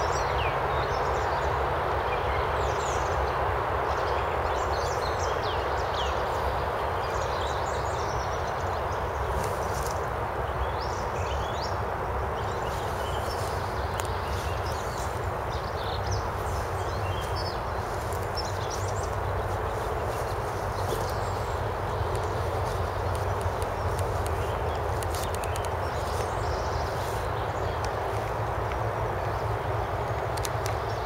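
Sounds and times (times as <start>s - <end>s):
small birds chirping: 2.1s - 31.0s
footsteps in dry leaves: 9.2s - 10.2s, 12.4s - 29.6s
steady rushing background: 11.8s - 31.0s.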